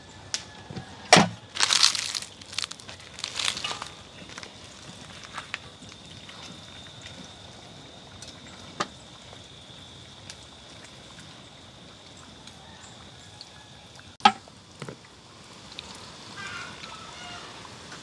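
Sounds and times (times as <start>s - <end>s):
dumplings sizzling in hot oil: 1.6s - 6.0s.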